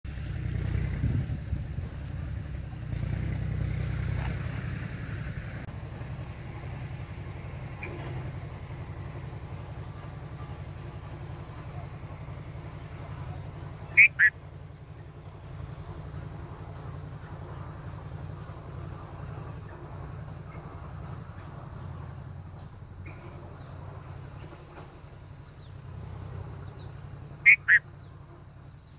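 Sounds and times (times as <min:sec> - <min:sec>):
low background rumble: 0:00.1 - 0:28.9
bird calls: 0:12.7 - 0:15.1, 0:26.6 - 0:28.9.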